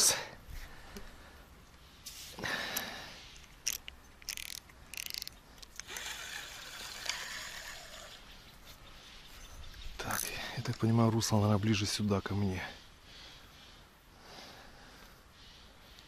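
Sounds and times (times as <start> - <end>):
soft hiss: 0.1 - 16.0
fishing reel ratcheting ticks: 3.3 - 8.2
fishing reel click: 3.4 - 8.2.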